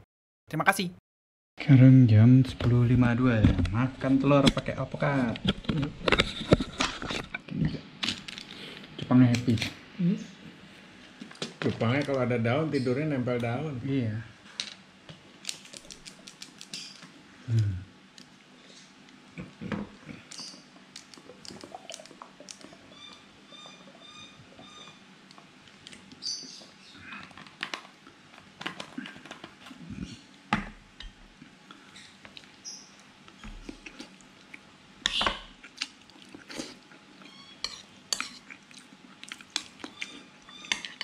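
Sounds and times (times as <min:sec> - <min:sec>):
chewing: 0:19.4 - 0:22.8, 0:35.6 - 0:41.0.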